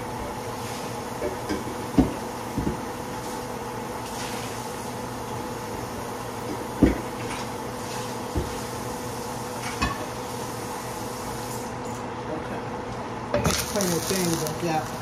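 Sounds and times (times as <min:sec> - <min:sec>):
steady hiss: 0:13.5 - 0:15.0.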